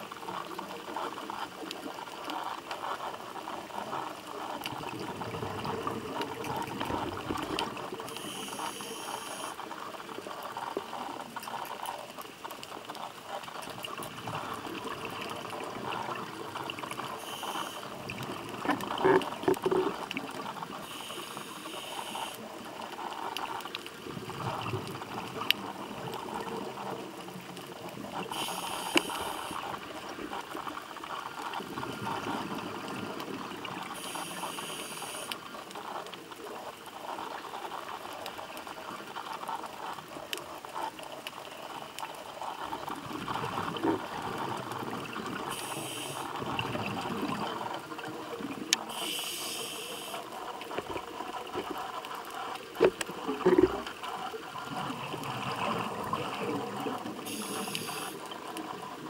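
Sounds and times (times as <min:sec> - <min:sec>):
diver inhaling through regulator: 0:28.3 - 0:29.6, 0:45.5 - 0:46.3, 0:48.9 - 0:50.3, 0:57.2 - 0:58.2.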